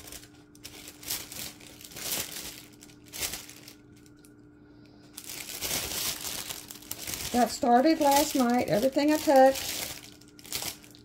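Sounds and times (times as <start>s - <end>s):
plastic bags crinkling: 0.0s - 4.4s, 5.0s - 11.0s.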